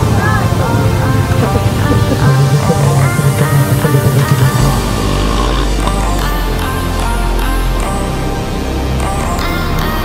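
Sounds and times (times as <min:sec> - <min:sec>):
loud heavy rock music: 0:00.0 - 0:10.0.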